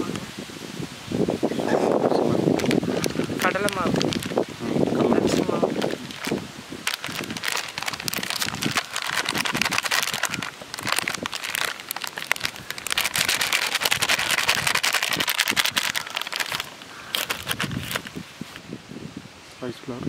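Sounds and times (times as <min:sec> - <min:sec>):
plastic flour packet crinkling: 0:02.4 - 0:18.2.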